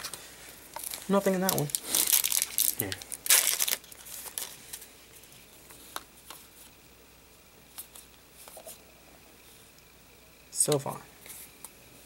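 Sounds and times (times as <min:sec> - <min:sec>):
foil wrapper crinkling: 0:00.0 - 0:05.4
trading cards being handled: 0:00.0 - 0:06.8.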